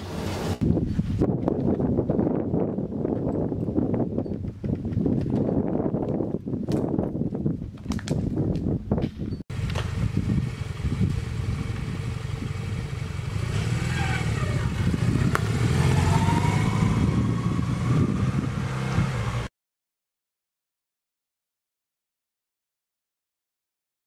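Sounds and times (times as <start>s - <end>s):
small motorcycle pulling away: 9.5s - 19.5s.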